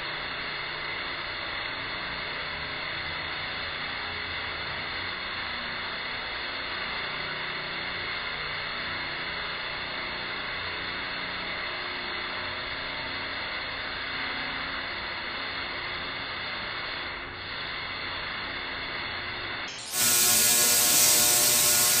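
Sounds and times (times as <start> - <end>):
tesla coil buzzing crackle: 12.4 - 22.0.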